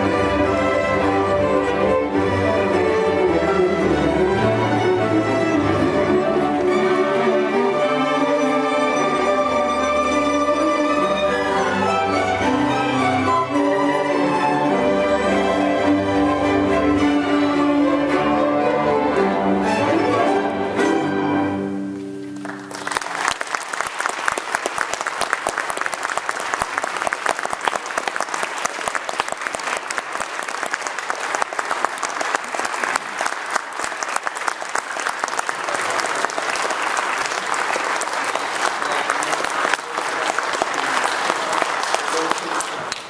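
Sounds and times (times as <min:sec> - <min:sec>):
audience applauding: 0:22.2 - 0:43.0.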